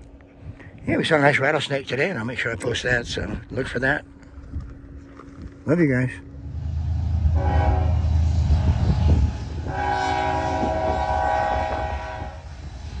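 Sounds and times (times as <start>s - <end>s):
low train rumble: 0.0s - 13.0s
locomotive air horn chord: 7.1s - 12.5s.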